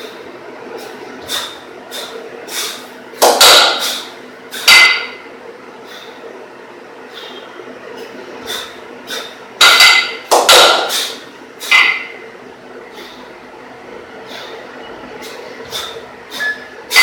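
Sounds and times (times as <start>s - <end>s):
kettlebells clanking together: 3.2s - 3.9s, 4.6s - 5.2s, 9.6s - 11.0s, 11.7s - 12.2s.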